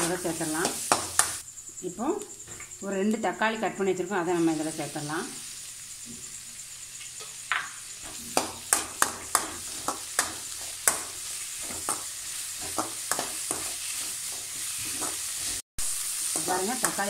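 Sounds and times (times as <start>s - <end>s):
vegetables sizzling in hot oil: 0.0s - 3.0s, 3.6s - 17.0s
spatula clacking against pan: 8.3s - 15.2s.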